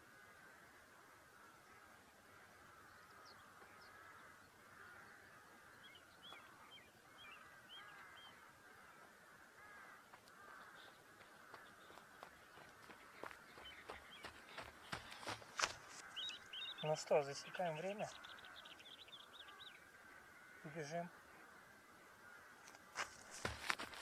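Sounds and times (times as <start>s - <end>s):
distant birds calling: 0.0s - 24.0s
soft footsteps on dirt: 3.5s - 16.9s, 22.2s - 24.0s.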